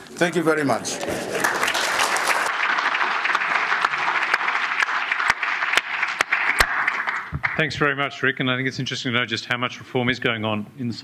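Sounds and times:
audience applauding: 0.7s - 7.8s
sharp hand claps: 1.4s - 7.8s.

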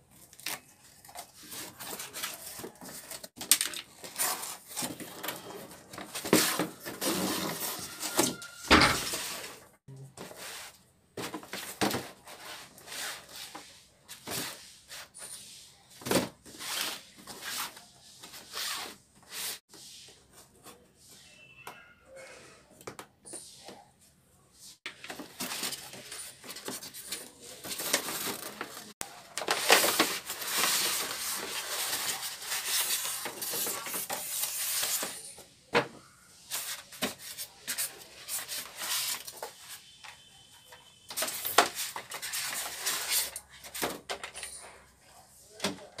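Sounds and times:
cardboard boxes rubbing and scraping: 4.1s - 8.4s.

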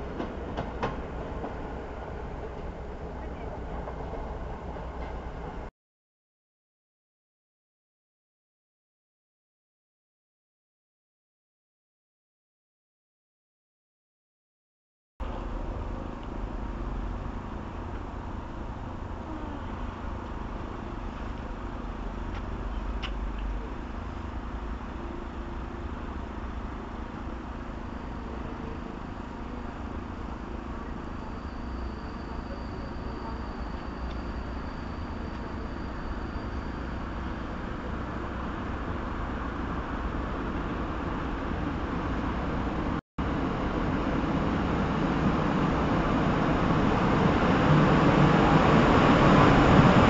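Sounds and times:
train rumbling: 0.0s - 5.7s, 15.2s - 50.0s
faint high whine: 27.8s - 37.5s.

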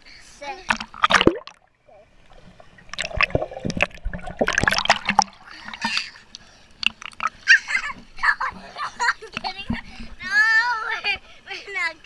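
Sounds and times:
pool water splashing: 0.4s - 12.0s.

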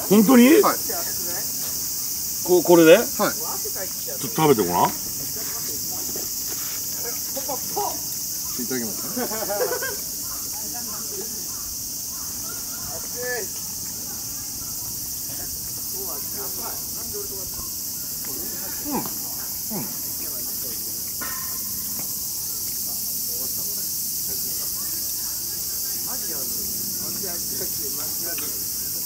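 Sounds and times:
insects chirping chorus: 0.0s - 29.0s.

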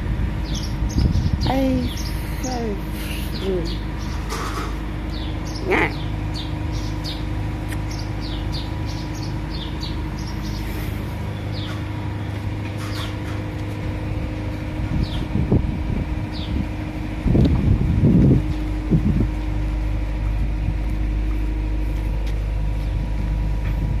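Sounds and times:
small birds chirping: 0.0s - 13.8s, 14.4s - 17.4s
motor humming: 0.0s - 24.0s.

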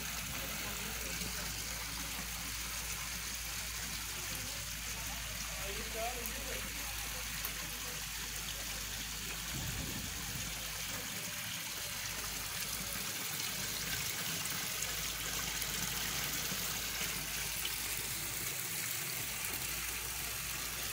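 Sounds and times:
fountain water pouring and splashing: 0.0s - 20.9s
water trickling into pool: 0.0s - 20.9s.

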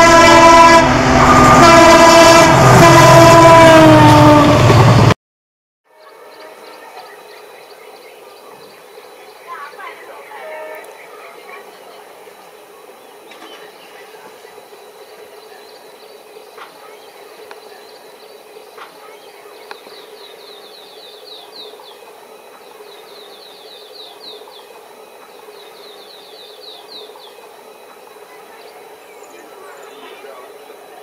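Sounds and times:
bird chirping: 12.8s - 31.0s.

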